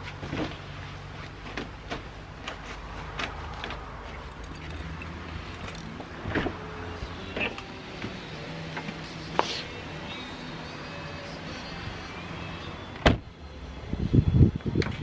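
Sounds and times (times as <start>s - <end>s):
car door opening with clunk: 6.2s - 6.6s, 13.0s - 13.2s.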